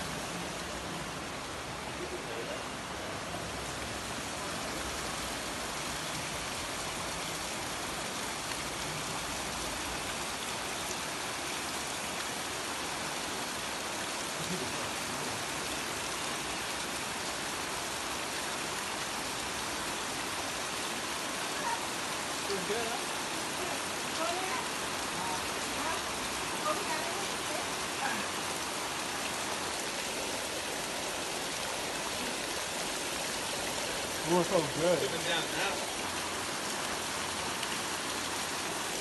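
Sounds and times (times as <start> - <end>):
rush of falling water: 0.0 - 39.0.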